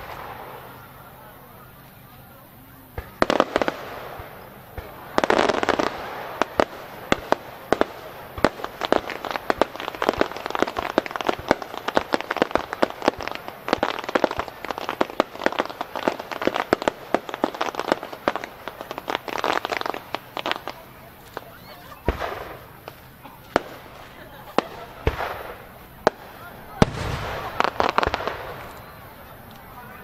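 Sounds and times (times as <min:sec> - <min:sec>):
fireworks bangs and cracks: 0:00.0 - 0:30.0
fireworks crackling: 0:00.0 - 0:30.0.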